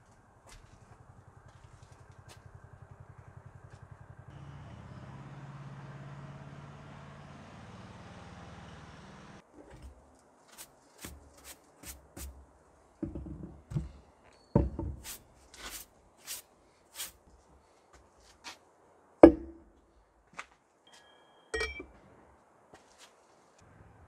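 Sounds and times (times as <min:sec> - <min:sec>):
brush sweeping wooden table: 0:09.8 - 0:12.4, 0:14.9 - 0:17.2
knocks of objects on wood: 0:13.0 - 0:14.0, 0:14.6 - 0:15.2
metal dripper clinking on tumbler: 0:21.5 - 0:21.9.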